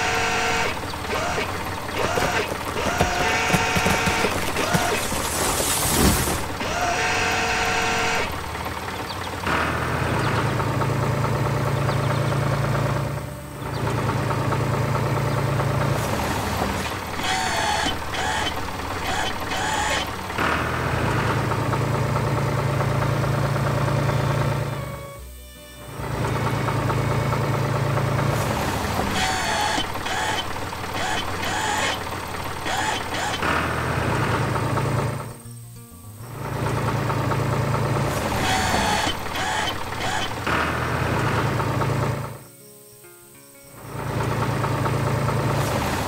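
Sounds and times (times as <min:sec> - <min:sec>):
short whining mechanical effects: 0:00.0 - 0:10.6, 0:16.6 - 0:21.5, 0:23.7 - 0:35.6, 0:37.9 - 0:42.4
cartoon tractor engine drone: 0:00.0 - 0:46.0.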